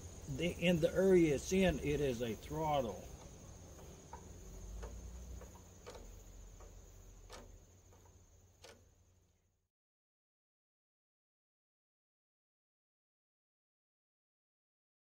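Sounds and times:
crickets trilling: 0.0 - 9.4
faint light clicks: 3.1 - 8.9.

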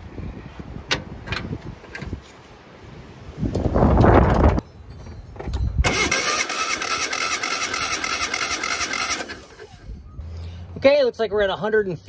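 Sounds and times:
starter motor cranking engine: 5.8 - 10.0.

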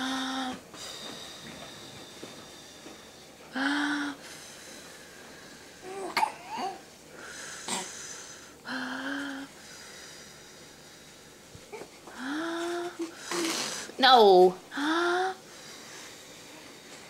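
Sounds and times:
baby cooing: 5.8 - 6.8
baby blowing raspberries: 12.3 - 13.9.

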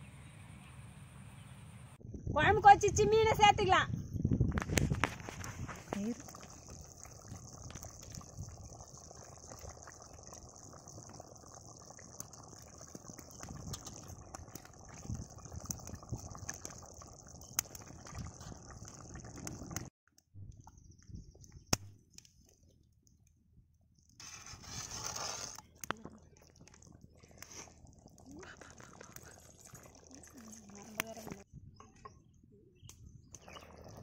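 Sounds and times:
curry bubbling and popping: 4.4 - 23.3, 24.0 - 31.5, 33.2 - 34.0.

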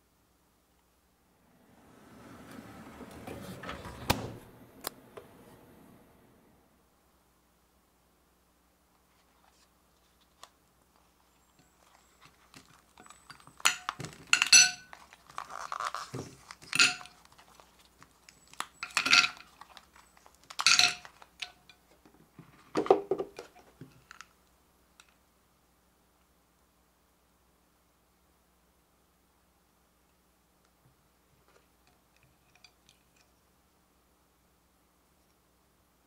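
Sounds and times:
silicone mould rubbing and cracking: 11.3 - 22.6
ice clinking onto a plate: 13.1 - 15.0, 16.7 - 17.2, 18.6 - 19.5, 20.5 - 21.8.

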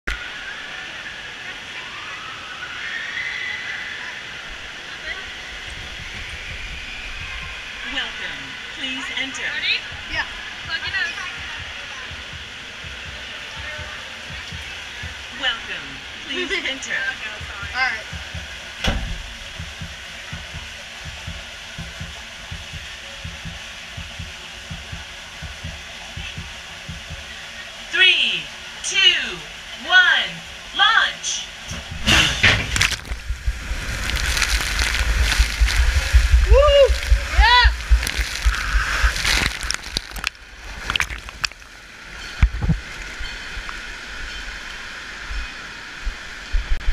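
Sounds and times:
rush of running water: 0.1 - 46.9
soft low thumps: 9.8 - 15.3, 17.4 - 27.3, 32.8 - 41.7
thud: 18.8 - 19.2, 31.8 - 33.2.

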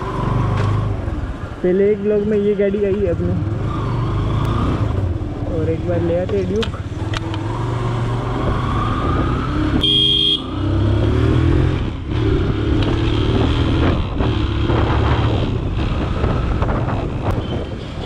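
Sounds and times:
motorcycle engine shifting gears: 2.9 - 18.0
horn beep: 9.8 - 10.6.

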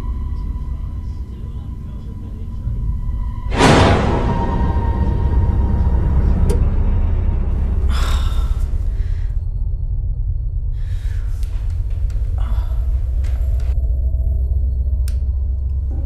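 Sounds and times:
deep rumbling drone: 0.0 - 16.0
woman gasping: 7.9 - 9.4, 12.3 - 13.5.

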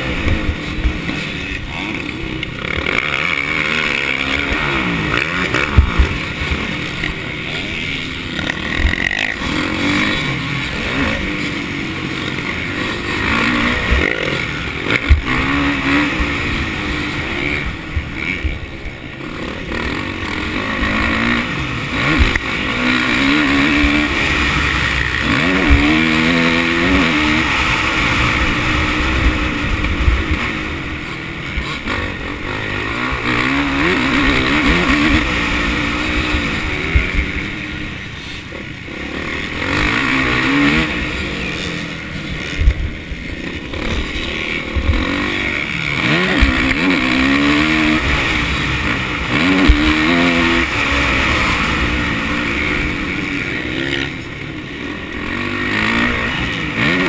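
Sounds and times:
motorbike engine revving: 0.0 - 57.0.

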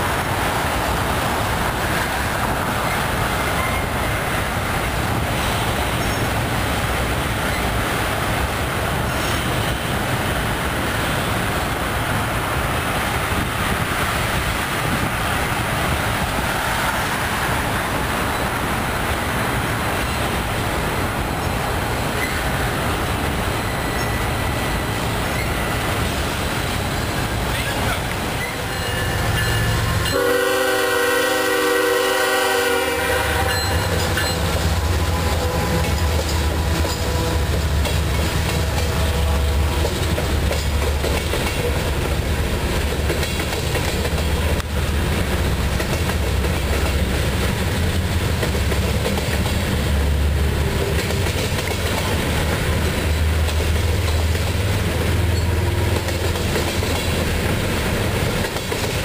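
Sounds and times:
freight train rumbling past: 0.0 - 59.0
locomotive air horn blast: 28.8 - 37.8, 38.4 - 39.9.

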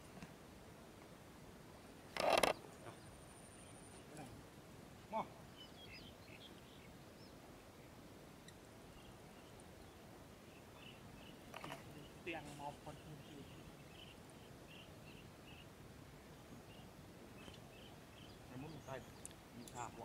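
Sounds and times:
faint bird chirps: 5.1 - 20.0.

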